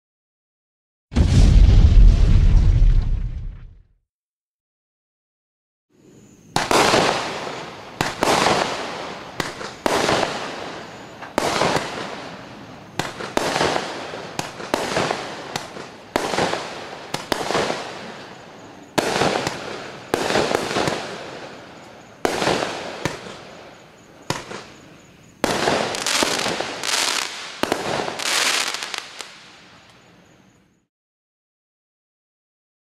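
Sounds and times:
firework bangs with crackling: 0:01.1 - 0:03.6, 0:06.5 - 0:24.8, 0:25.4 - 0:29.6.

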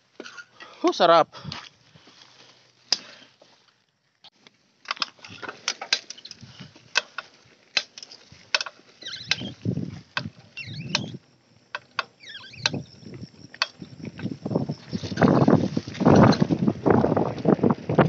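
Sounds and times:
bike clicking and rattling: 0:04.2 - 0:18.0
tyre and wind rumble: 0:08.3 - 0:11.4, 0:12.4 - 0:18.0
high wavering chirps: 0:10.5 - 0:15.6.

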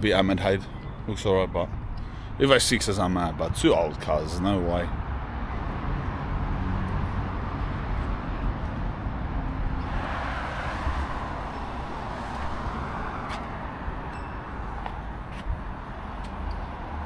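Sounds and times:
road traffic rumble: 0:00.0 - 0:17.0
vehicle passing: 0:05.0 - 0:17.0.

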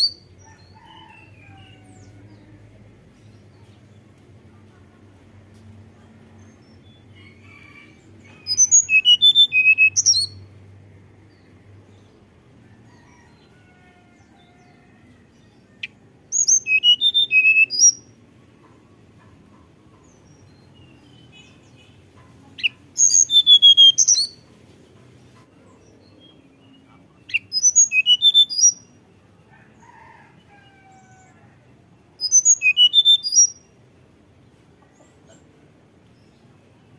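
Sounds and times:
bird singing whistled notes: 0:00.0 - 0:00.2, 0:08.4 - 0:10.4, 0:16.4 - 0:18.1, 0:22.6 - 0:24.4, 0:27.3 - 0:28.8, 0:32.2 - 0:33.6.

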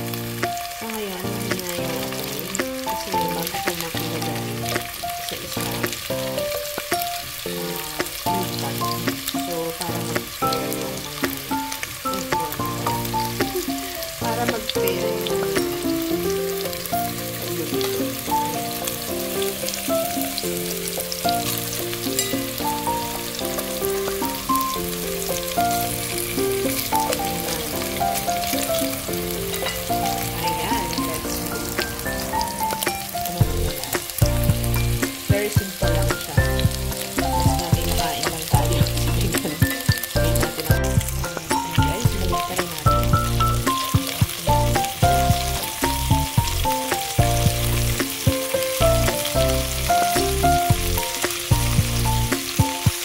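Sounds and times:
background music with melody: 0:00.0 - 0:53.0
meatballs sizzling in a pan: 0:00.0 - 0:53.0
bass beat: 0:25.8 - 0:53.0.

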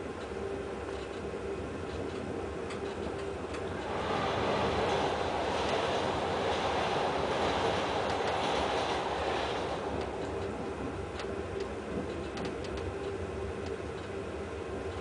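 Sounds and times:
faint steady hum: 0:00.0 - 0:05.0
train wheels rumbling on rails: 0:00.0 - 0:15.0.

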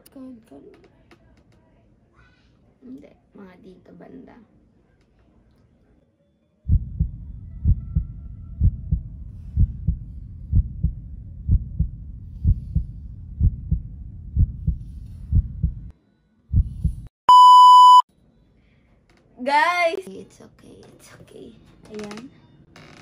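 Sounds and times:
heartbeat double thuds: 0:06.7 - 0:15.9, 0:16.5 - 0:17.1
loud high beep: 0:17.3 - 0:18.0.

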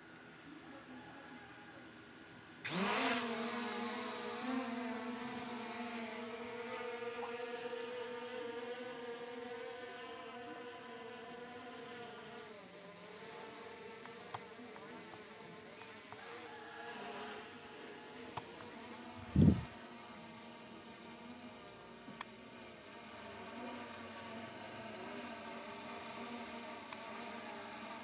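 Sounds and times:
drone propellers buzzing: 0:19.0 - 0:19.7.

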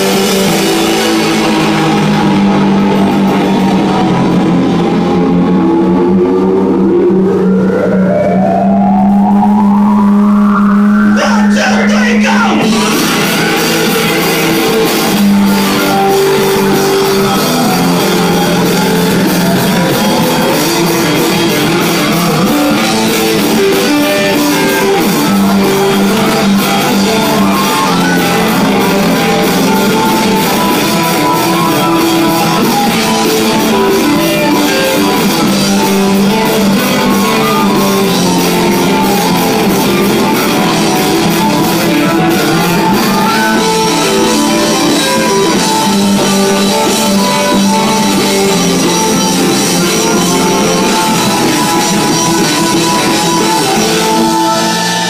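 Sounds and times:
live rock music: 0:00.0 - 0:55.0.

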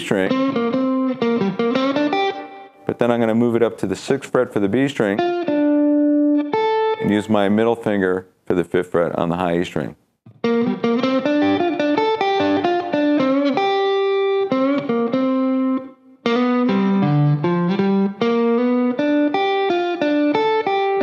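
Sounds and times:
electric guitar blues lick: 0:00.0 - 0:03.2, 0:05.0 - 0:07.3, 0:10.3 - 0:21.0.

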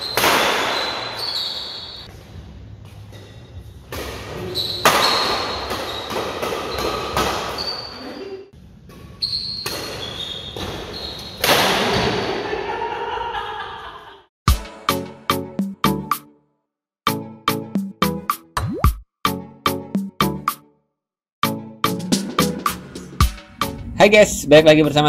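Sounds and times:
racket hitting shuttlecock: 0:00.0 - 0:01.6, 0:03.9 - 0:07.8, 0:08.9 - 0:12.3
shoe squeaks on court: 0:00.0 - 0:02.1, 0:04.3 - 0:08.4, 0:09.0 - 0:11.5
players' voices: 0:23.9 - 0:25.0.

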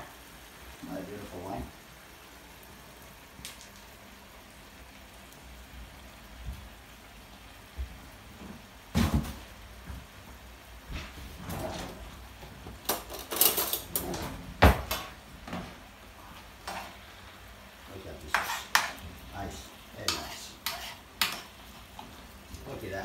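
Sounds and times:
kitchen items knocking and clattering: 0:08.9 - 0:09.5, 0:12.6 - 0:15.8.

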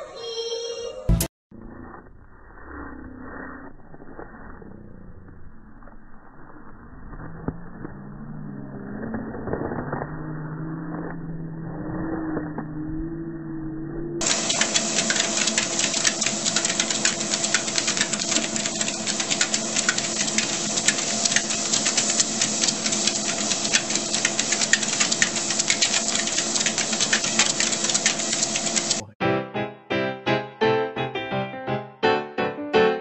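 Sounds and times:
low wavering hum: 0:01.6 - 0:14.2
treadmill motor whine: 0:06.2 - 0:29.1
fast ticking: 0:14.2 - 0:29.1.

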